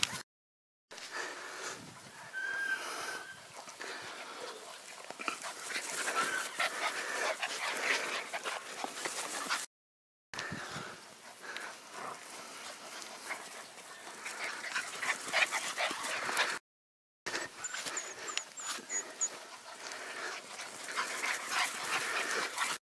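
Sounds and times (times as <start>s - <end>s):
puppies whimpering and yipping: 2.1s - 3.6s, 5.5s - 8.4s, 17.3s - 22.8s.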